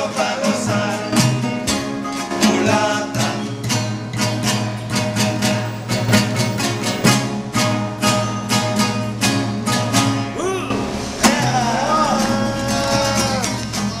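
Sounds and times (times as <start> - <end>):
voices singing in harmony: 0.0 - 4.1, 10.3 - 14.0
acoustic guitars strummed: 0.0 - 14.0.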